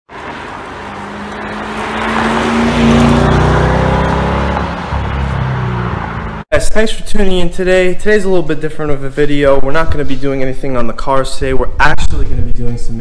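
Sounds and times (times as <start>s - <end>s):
sports car engine accelerating: 0.1s - 6.4s.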